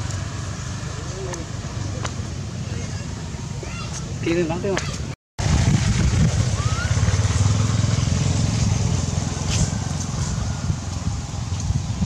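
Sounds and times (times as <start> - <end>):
motorbike engine rumbling: 5.4 - 12.0.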